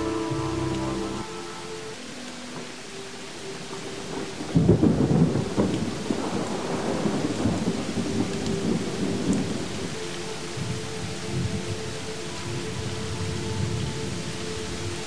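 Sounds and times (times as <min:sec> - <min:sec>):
faint held music tones: 0:00.0 - 0:15.0
steady rain: 0:00.0 - 0:15.0
thunder rumbling: 0:03.7 - 0:15.0.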